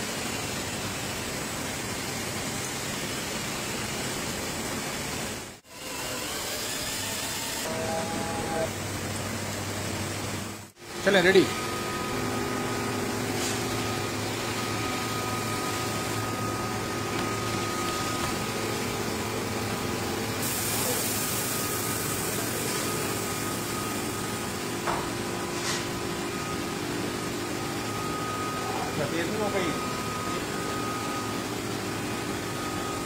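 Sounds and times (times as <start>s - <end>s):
workshop machinery hum: 0.0s - 33.0s
air hissing: 20.3s - 24.0s.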